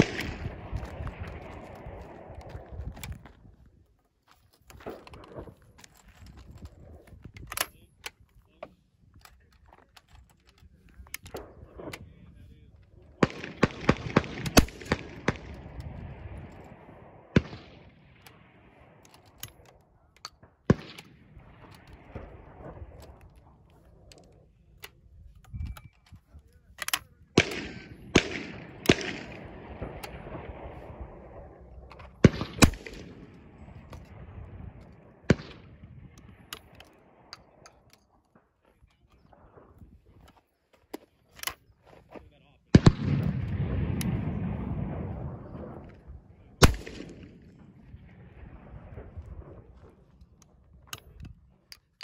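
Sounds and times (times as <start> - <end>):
shotgun blast: 0.0 - 2.3, 27.4 - 37.3, 42.7 - 45.9, 46.6 - 49.7
sharp cracks: 0.0 - 3.3, 13.2 - 24.4, 26.8 - 38.5, 42.7 - 49.8
gun handling clicks: 0.0 - 3.6, 4.2 - 12.1, 12.8 - 16.8, 17.4 - 30.6, 31.8 - 42.0, 46.6 - 47.9, 49.5 - 52.0
shotgun action snapping open: 23.0 - 30.2, 31.9 - 34.2.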